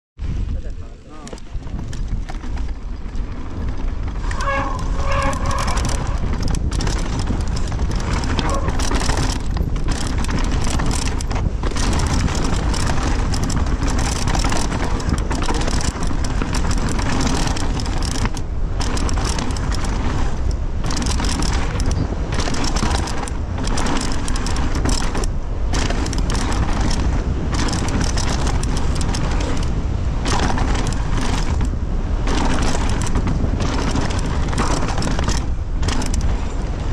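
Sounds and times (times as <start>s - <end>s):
bike tyres on dirt and stones: 0.2s - 36.9s
wind rumble on microphone: 0.2s - 36.9s
bike chain and frame rattle: 1.1s - 36.9s.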